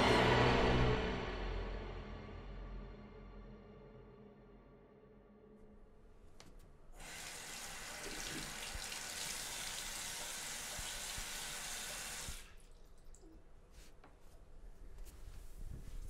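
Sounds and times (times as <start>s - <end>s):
water pouring into sink: 7.0s - 13.5s.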